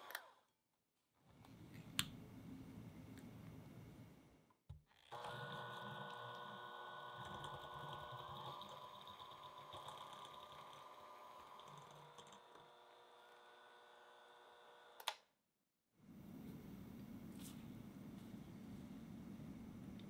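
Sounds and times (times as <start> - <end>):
electric hand mixer running: 5.1 - 15.0.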